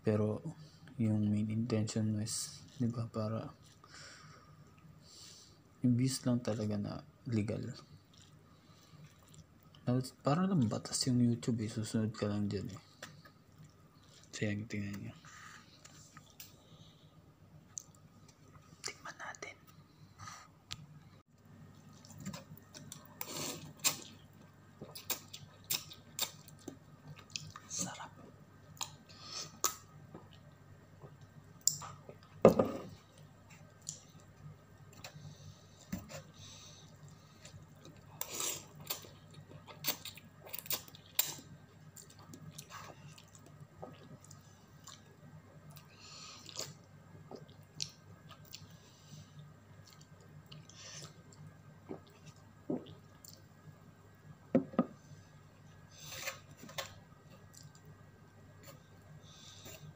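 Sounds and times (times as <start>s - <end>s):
person chewing noodles: 8.0s - 9.8s, 21.8s - 27.7s, 35.0s - 53.6s.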